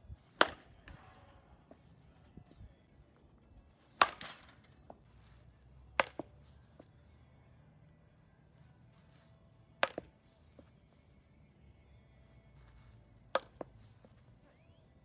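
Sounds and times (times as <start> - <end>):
bat hitting softball: 0.3 - 1.8, 3.9 - 5.0, 6.0 - 6.3, 9.8 - 10.1, 13.3 - 13.7.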